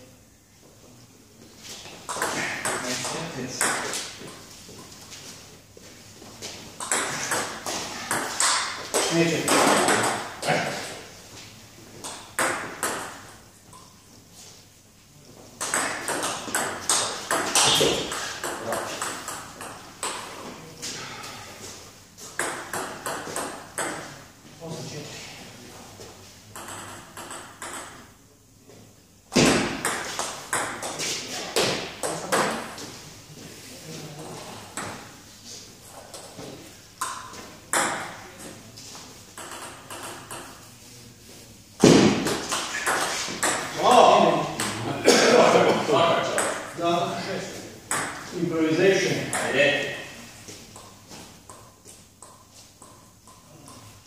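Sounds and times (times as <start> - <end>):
ball bouncing on table: 15.6 - 20.3, 29.3 - 31.0, 37.0 - 38.5, 47.9 - 48.3.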